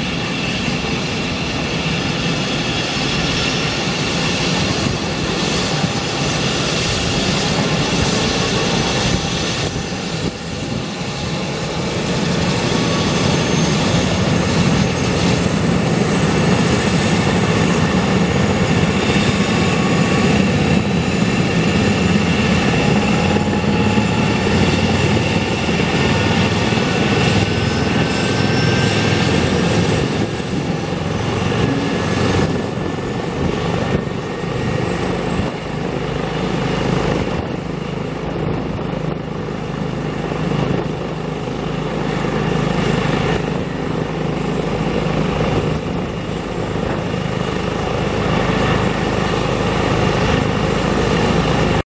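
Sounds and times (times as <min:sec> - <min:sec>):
helicopter engines and rotors running: 0:00.0 - 0:51.8
turbine whine rising in pitch: 0:16.5 - 0:37.6.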